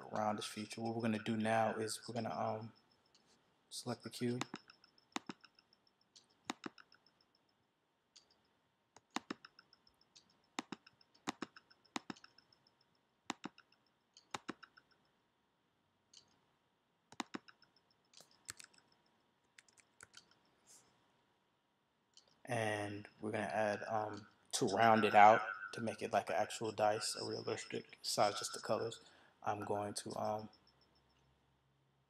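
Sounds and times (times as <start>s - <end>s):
computer mouse clicks: 4.2s - 7.5s, 8.1s - 12.7s, 13.3s - 15.1s, 16.1s - 16.4s, 17.1s - 20.5s, 22.1s - 22.4s.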